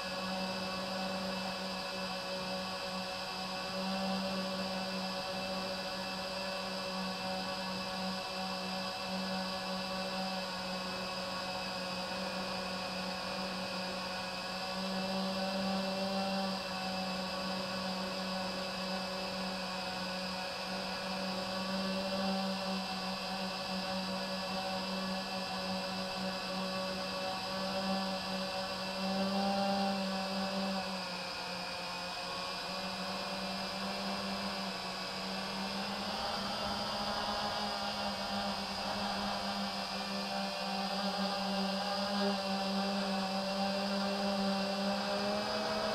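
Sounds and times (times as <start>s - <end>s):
drone motors and propellers humming: 0.0s - 45.9s
drone motors whirring: 31.6s - 45.9s.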